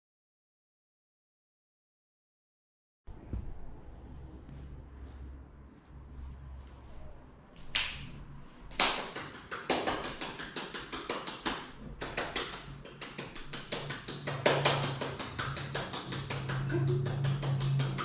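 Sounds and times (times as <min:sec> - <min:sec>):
light hand claps and taps: 0:08.7 - 0:18.0.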